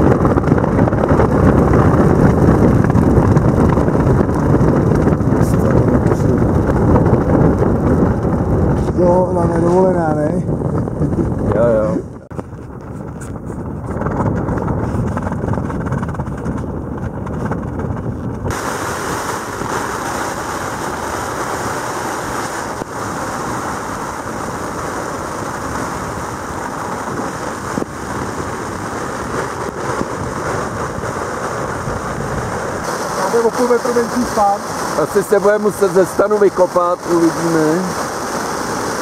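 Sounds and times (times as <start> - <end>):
storm wind hissing: 0.0 - 39.0
wind buffeting microphone: 0.0 - 39.0.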